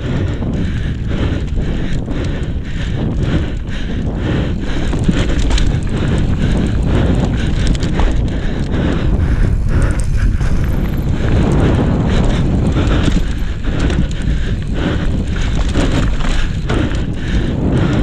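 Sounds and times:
bike rattling over bumps: 0:00.0 - 0:18.0
wind rumble on microphone: 0:00.0 - 0:18.0
tyres crunching over dirt and stones: 0:09.1 - 0:17.0.

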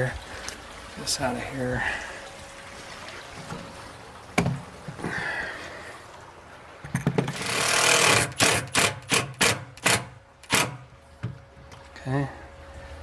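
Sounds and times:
drill trigger bursts: 0:07.3 - 0:10.8.

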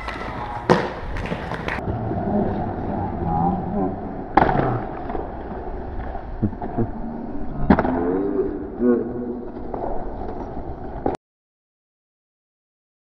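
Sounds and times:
inline skates slamming onto ledge: 0:00.0 - 0:01.8
people talking: 0:02.3 - 0:04.8, 0:06.4 - 0:09.4.

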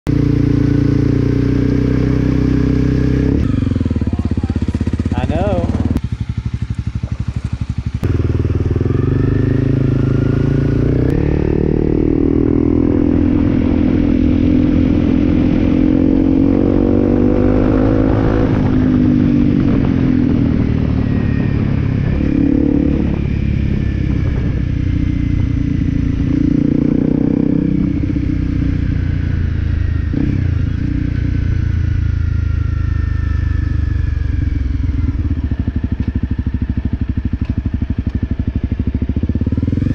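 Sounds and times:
motorcycle engine running: 0:00.1 - 0:39.9
wind noise: 0:08.2 - 0:32.5.

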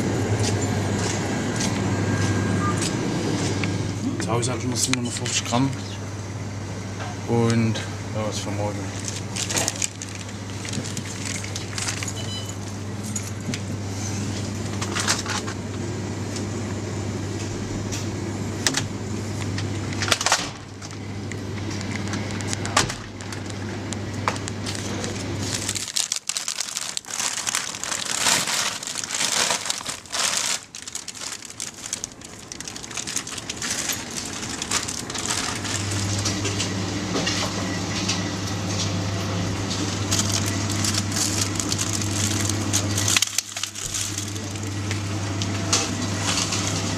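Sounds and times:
steady low hum: 0:00.0 - 0:46.9
plastic packaging crinkling: 0:08.8 - 0:13.2, 0:21.7 - 0:36.4, 0:39.8 - 0:44.9.

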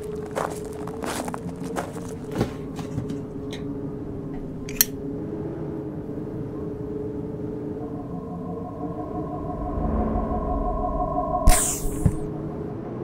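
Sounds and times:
footsteps crunching on junk: 0:00.0 - 0:03.3
low drone: 0:03.3 - 0:13.0.

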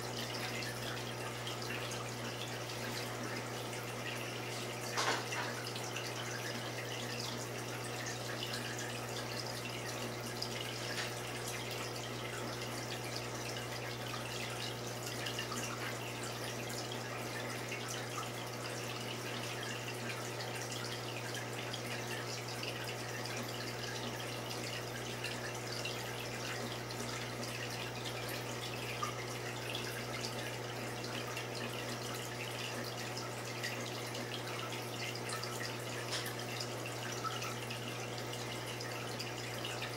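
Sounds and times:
water trickling and dripping: 0:00.0 - 0:39.9.

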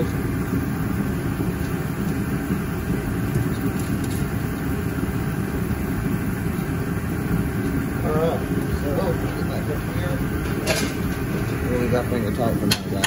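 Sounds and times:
low rumbling machine noise: 0:00.0 - 0:13.0.

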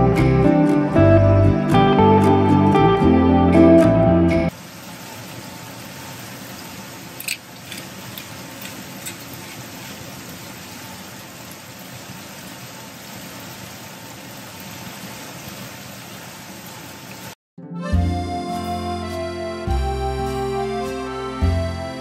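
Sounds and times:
meat and onion sizzling in oil: 0:04.5 - 0:17.4
pops and crackles of frying: 0:07.1 - 0:10.1.

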